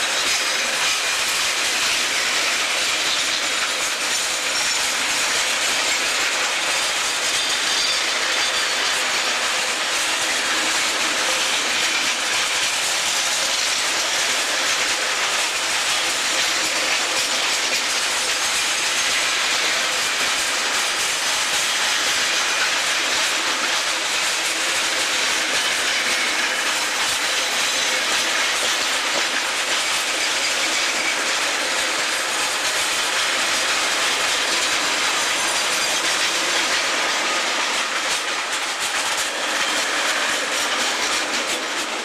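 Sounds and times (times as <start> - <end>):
steel wheels rolling on rails: 0.0 - 42.0.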